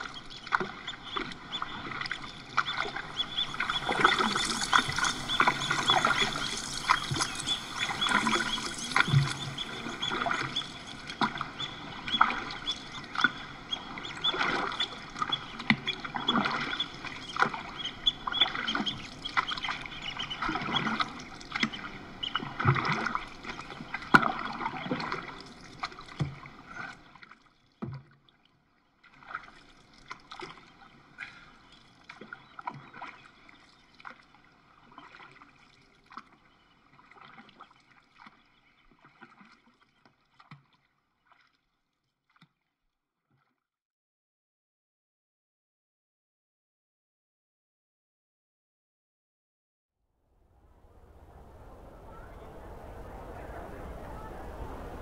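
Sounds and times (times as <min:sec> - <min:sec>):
paddle strokes splashing: 0:00.0 - 0:28.4, 0:29.0 - 0:42.6
water lapping against canoe: 0:00.0 - 0:42.6.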